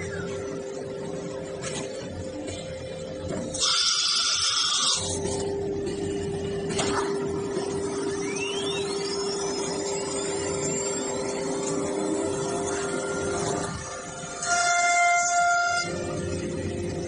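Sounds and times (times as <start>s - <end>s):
cnc router mechanical hum: 0.0s - 17.0s
faint rising whines: 5.4s - 14.4s.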